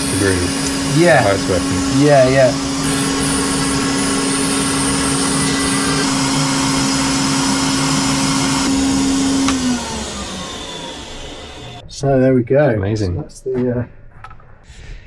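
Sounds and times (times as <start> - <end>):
vacuum suction hum and hiss: 0.0 - 8.7.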